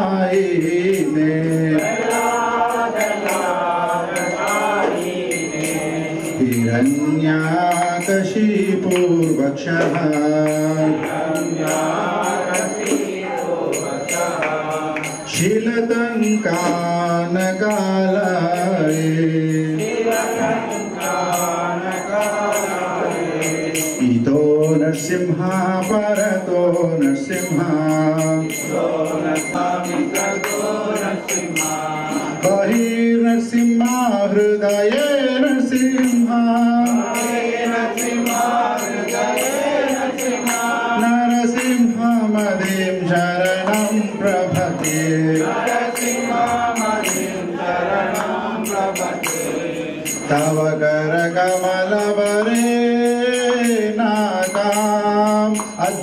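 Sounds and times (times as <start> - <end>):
devotional chanting: 0.0 - 56.0
jingling metallic beat: 0.0 - 56.0.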